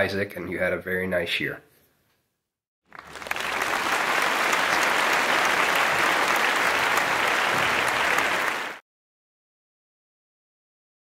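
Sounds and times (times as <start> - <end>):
crowd applause: 2.9 - 8.8.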